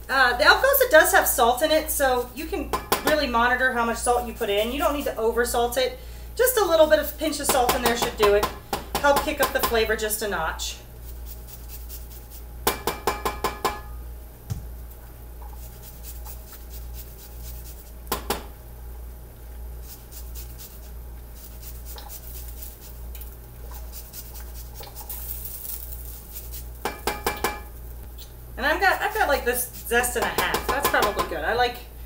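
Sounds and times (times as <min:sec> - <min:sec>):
grater rasping across peel: 0:11.0 - 0:12.4, 0:15.5 - 0:18.0, 0:19.8 - 0:23.0, 0:23.7 - 0:26.7, 0:28.8 - 0:30.3
metallic taps on saucepan: 0:12.7 - 0:13.9.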